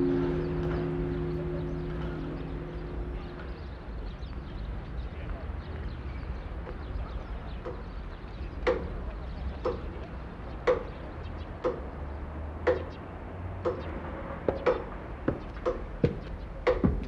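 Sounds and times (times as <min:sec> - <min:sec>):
clock ticking with ring: 0:08.6 - 0:09.0, 0:09.6 - 0:11.0, 0:11.6 - 0:12.0, 0:12.6 - 0:13.0, 0:13.7 - 0:14.0.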